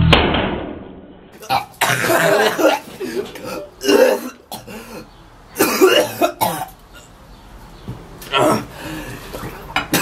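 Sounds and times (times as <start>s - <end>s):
young man coughing and gagging: 1.4s - 4.9s, 5.6s - 6.8s.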